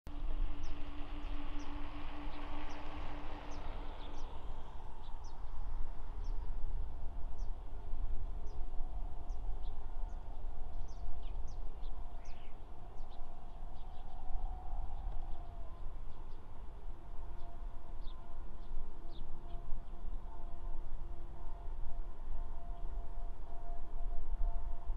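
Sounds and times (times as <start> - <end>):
small birds chirping: 9.3 - 14.2.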